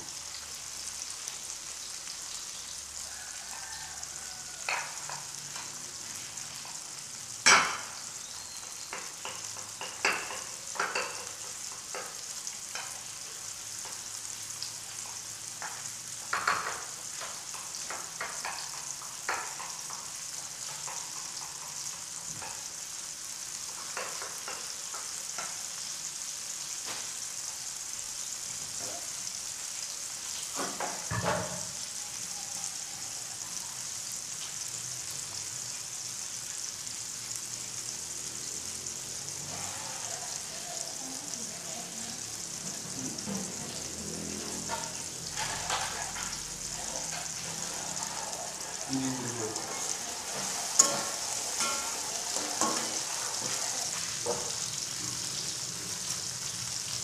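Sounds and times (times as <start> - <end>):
vegetables sizzling in a wok: 0.0 - 57.0
metal spatula scraping a pan: 44.4 - 48.9, 49.6 - 55.3.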